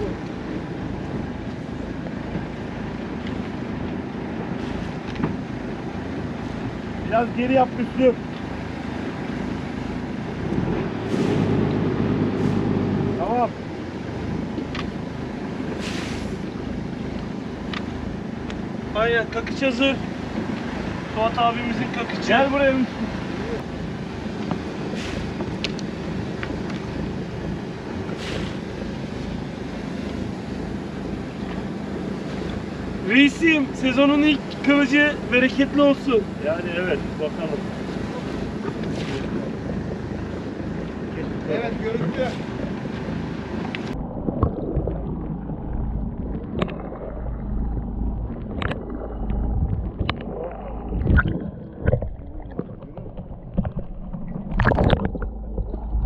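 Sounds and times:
boat engine rumbling: 0.0s - 56.0s
wind on microphone: 37.8s - 56.0s.

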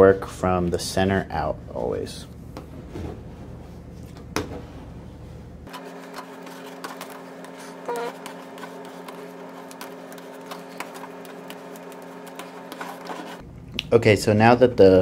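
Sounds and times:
steady low hum: 0.0s - 15.0s
card rubbing on plastic: 5.7s - 13.4s.

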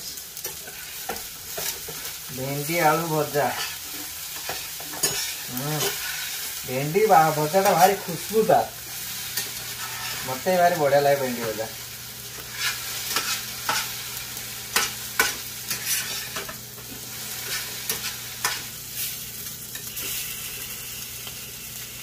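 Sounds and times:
food sizzling: 0.0s - 22.0s
metal spatula scraping frying pan: 0.4s - 2.0s, 3.4s - 6.5s, 9.3s - 10.3s, 12.5s - 14.0s, 14.8s - 16.6s, 17.4s - 19.1s.

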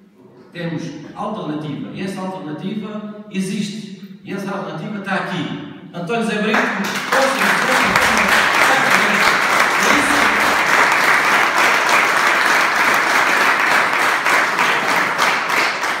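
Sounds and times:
audience applauding: 6.6s - 16.0s.

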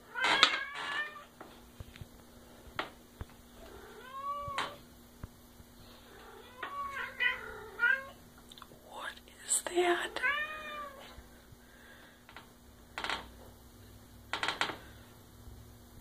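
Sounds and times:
cat meowing: 3.6s - 4.8s, 6.1s - 8.2s, 10.2s - 11.0s.

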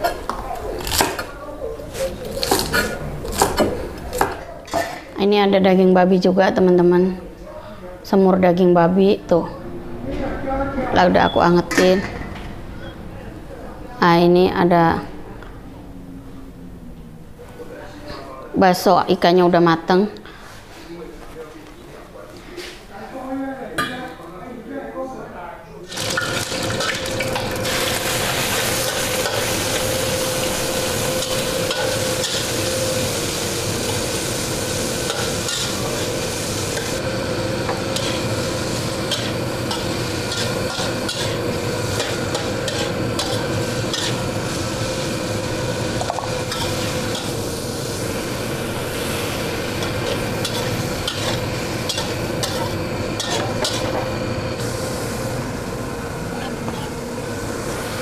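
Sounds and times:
food sizzling in hot oil: 25.9s - 56.2s
metal spatula scraping wok: 26.0s - 54.4s.

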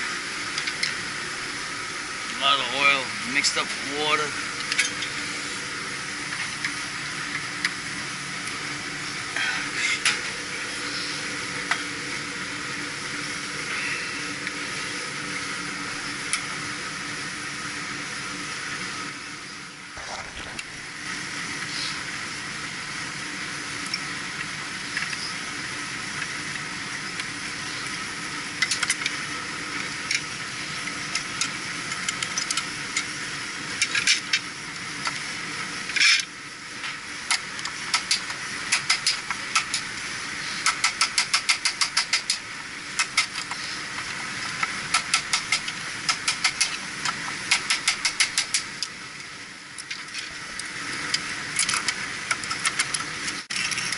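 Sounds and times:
steady hiss: 0.0s - 53.9s
hand tools clicking: 40.6s - 42.4s, 44.6s - 48.7s.

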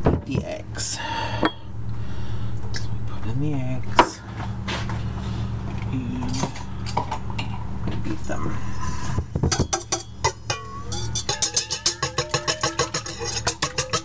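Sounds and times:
steady low hum: 0.0s - 14.0s
metal bowl and utensils clinking: 9.5s - 14.0s
music: 10.6s - 14.0s.

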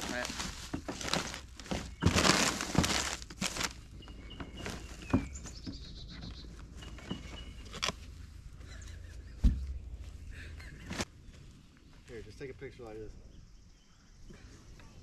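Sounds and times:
faint high bird chirps: 4.0s - 7.9s.

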